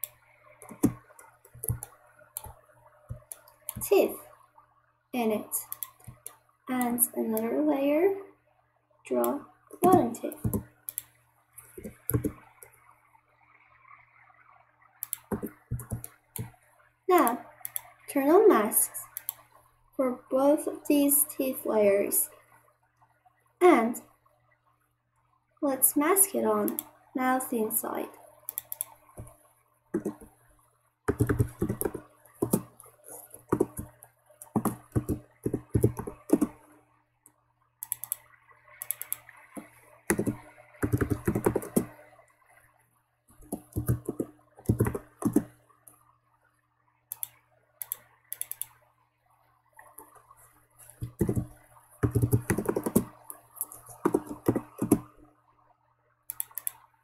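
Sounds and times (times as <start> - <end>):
typing on computer keyboard: 0.0 - 3.9, 9.2 - 11.0, 11.8 - 12.4, 15.0 - 16.5, 30.0 - 30.3, 31.1 - 36.6, 38.8 - 42.0, 43.4 - 45.5, 47.1 - 48.7, 51.0 - 55.1.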